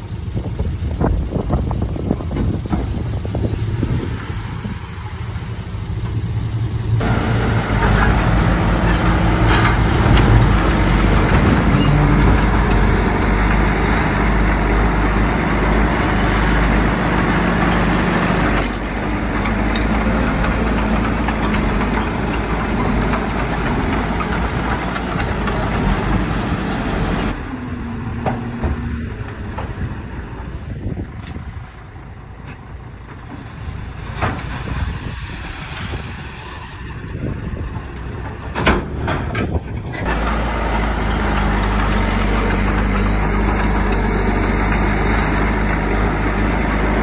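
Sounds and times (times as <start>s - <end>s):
diesel earthmoving machinery: 0.0s - 47.0s
sharp metal clanks: 17.5s - 20.0s.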